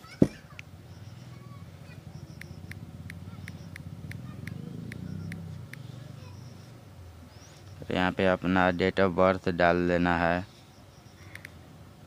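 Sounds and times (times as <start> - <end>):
smartphone keypad clicks: 2.2 - 5.9.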